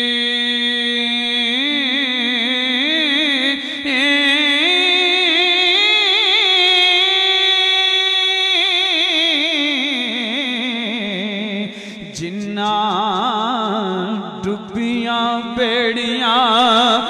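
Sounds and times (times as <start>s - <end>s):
man singing: 0.0s - 17.0s
breath: 3.6s - 3.9s, 11.7s - 12.1s.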